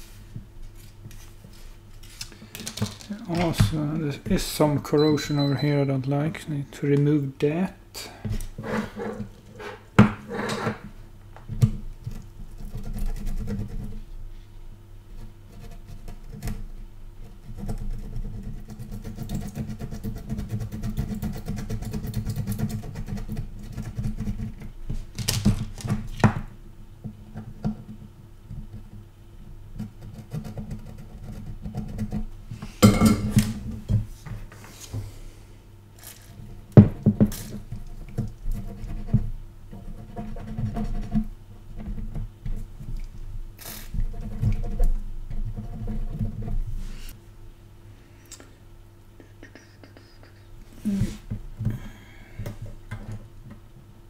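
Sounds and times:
steady low hum: 0.0 - 25.2, 25.9 - 54.0.

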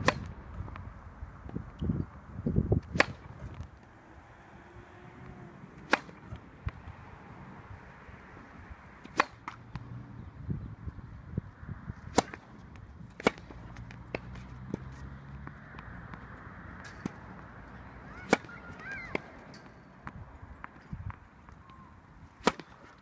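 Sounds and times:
tennis racket hitting ball: 2.8 - 6.9, 9.0 - 9.6
tennis ball bouncing: 2.8 - 7.0.

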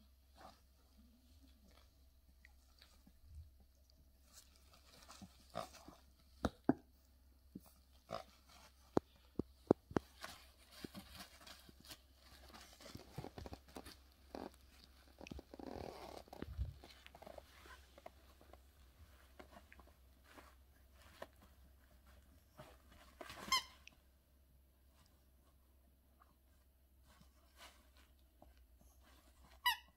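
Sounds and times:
rustling: 0.0 - 29.9
rubber squeaky toy squeak: 23.3 - 23.9, 29.5 - 29.9.

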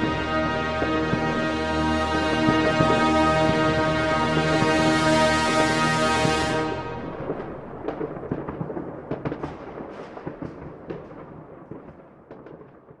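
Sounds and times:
fireworks crackling and popping: 0.0 - 13.0
low rumble: 6.4 - 9.0.

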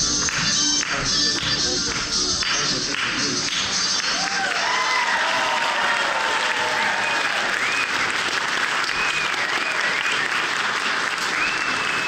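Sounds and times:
audience applauding: 2.4 - 12.0.

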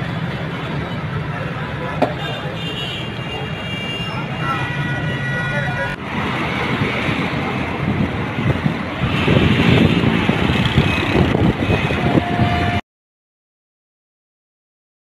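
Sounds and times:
road traffic: 0.0 - 12.8
wind buffeting microphone: 6.5 - 12.8.

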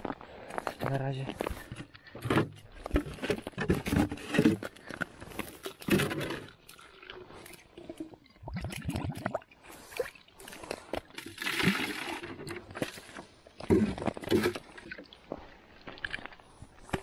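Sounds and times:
water and slush gurgling: 5.4 - 16.7.

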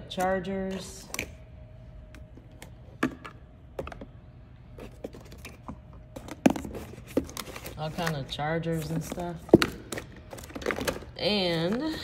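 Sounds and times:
plastic accessories clicking and knocking: 8.9 - 11.9.

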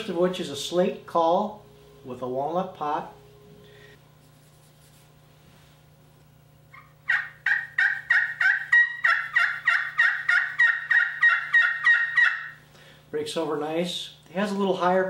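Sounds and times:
turkey call yelping: 6.7 - 12.6.

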